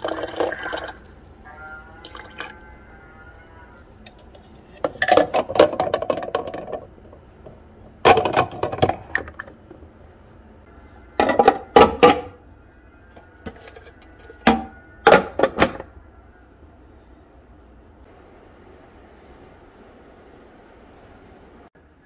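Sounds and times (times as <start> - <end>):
dishes and utensils clattering: 4.1 - 6.9, 8.0 - 9.6, 11.2 - 12.4.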